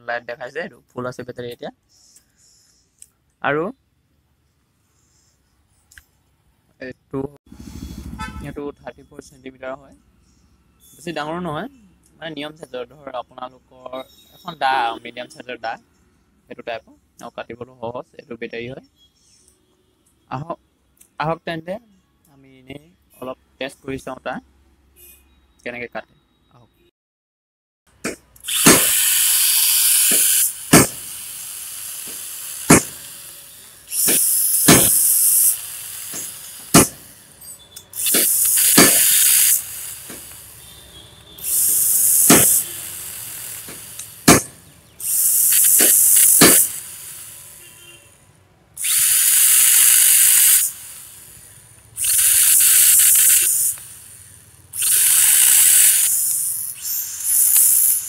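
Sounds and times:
chainsaw cutting a stalk: 28.1s - 37.2s, 38.0s - 40.7s, 41.3s - 47.6s, 48.8s - 51.4s, 52.0s - 54.2s, 54.8s - 58.0s
sharp knocks: 30.7s - 31.0s, 32.7s - 33.0s, 34.1s - 35.0s, 36.7s - 37.0s, 43.7s - 44.6s.

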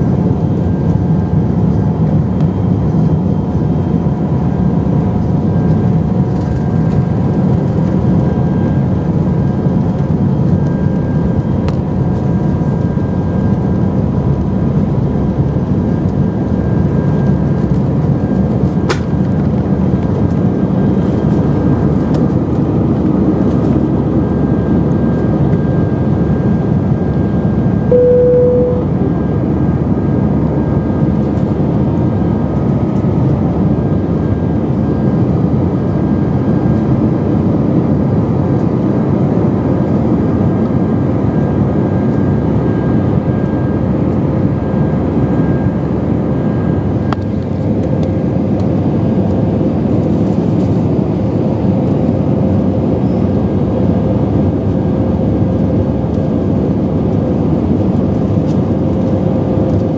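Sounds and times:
jet engine rush in cabin: 0.0s - 59.9s
brief steady tone: 27.9s - 29.4s.

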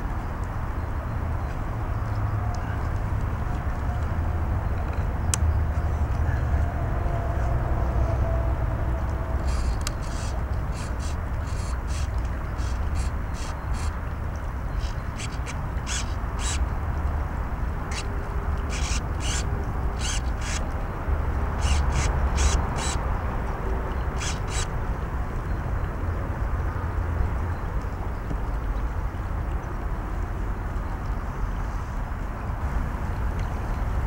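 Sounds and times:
servos buzzing: 9.4s - 14.0s, 14.8s - 16.6s, 17.9s - 20.7s, 21.6s - 23.0s, 24.1s - 24.7s.

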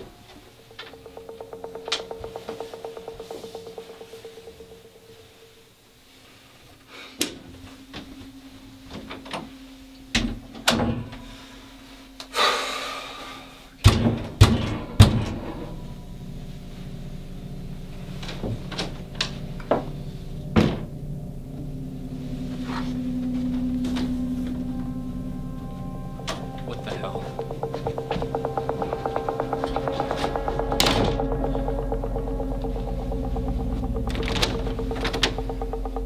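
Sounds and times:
low drone: 0.0s - 10.2s, 14.7s - 36.0s.

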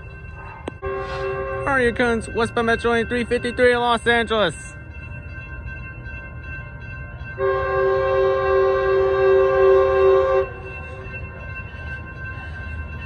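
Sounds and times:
train horn chord: 0.8s - 2.1s, 7.4s - 10.8s.

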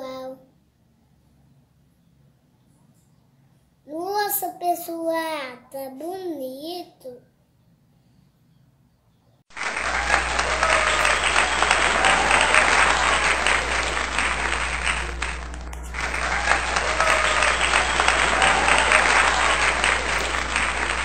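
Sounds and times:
crowd applauding: 9.5s - 21.0s.

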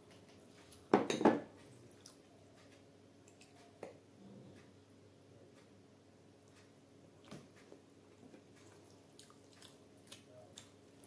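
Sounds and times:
glass bowl knocking on table: 1.0s - 1.4s.

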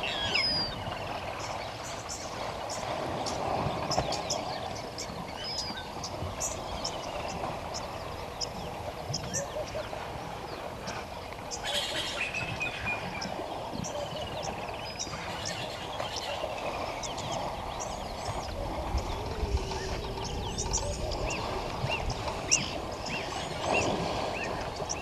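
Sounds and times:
chirping bird calls: 0.0s - 25.0s.

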